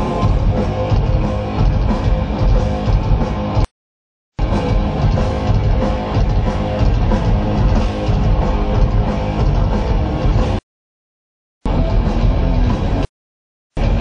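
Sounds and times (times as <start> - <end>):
distorted electric guitar: 0.0 - 3.7, 4.4 - 10.6, 11.7 - 13.1, 13.8 - 14.0
heavy metal band playing: 0.0 - 3.7, 4.4 - 10.6, 11.7 - 13.1, 13.8 - 14.0.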